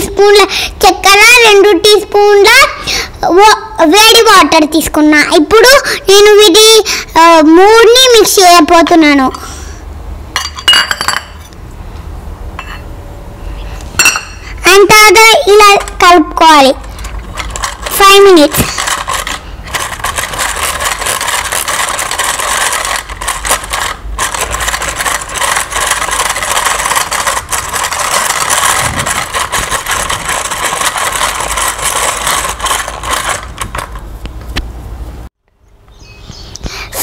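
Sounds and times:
egg beater rattling in metal bowl: 15.6 - 34.1.

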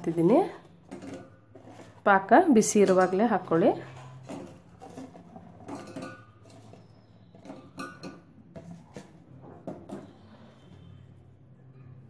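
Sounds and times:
knocks and clinks on steel pot: 5.6 - 6.8, 7.4 - 8.7.

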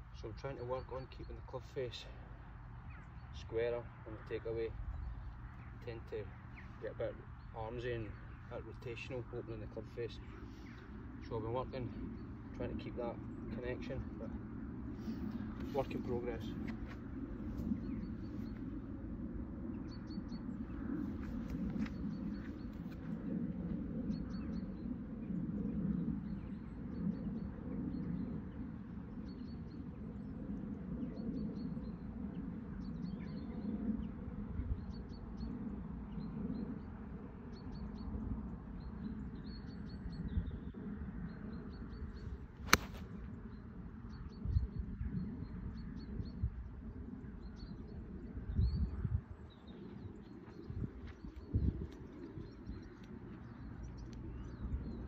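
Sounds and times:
small birds chirping: 0.0 - 19.0, 19.7 - 32.1, 38.8 - 46.5, 47.3 - 55.0
golf club striking ball: 42.7 - 43.0.

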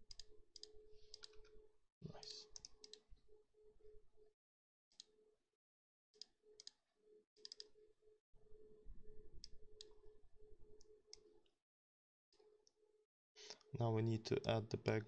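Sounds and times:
computer mouse clicks: 0.1 - 1.5, 2.5 - 3.0, 7.4 - 7.7.

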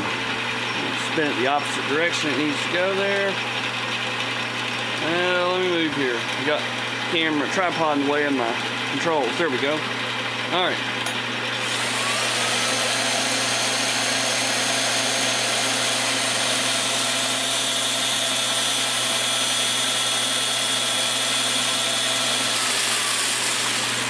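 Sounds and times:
lathe low hum: 0.0 - 24.0
rotary tool grinding steel: 11.6 - 24.0.

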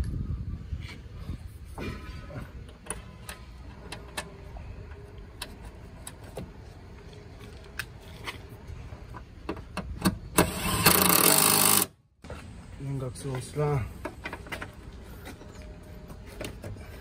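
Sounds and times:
power tool driving a bolt: 10.4 - 11.9.

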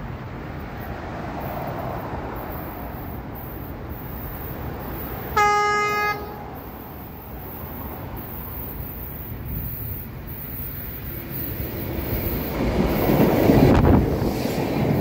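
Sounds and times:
train horn blast: 5.3 - 6.7
wind noise on microphone: 8.1 - 10.1, 11.5 - 15.0.

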